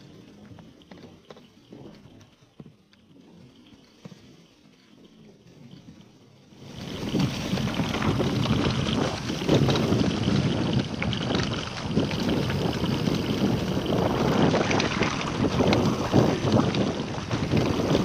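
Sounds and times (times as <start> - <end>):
mountain bike rattling on dirt trail: 0.0 - 18.0
wind buffeting microphone: 6.6 - 18.0.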